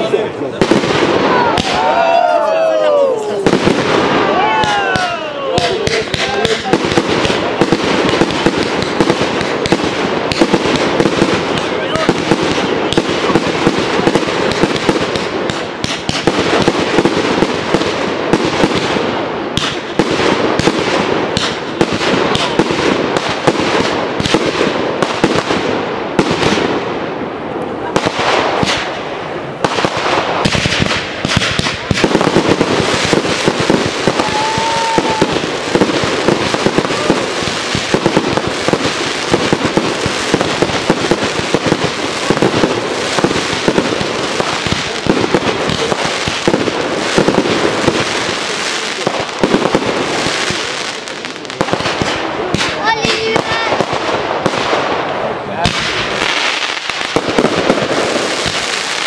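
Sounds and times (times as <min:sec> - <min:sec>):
fireworks bangs: 0:00.0 - 0:59.0
fireworks crackling: 0:00.0 - 0:59.0
firework whistle: 0:34.0 - 0:35.6.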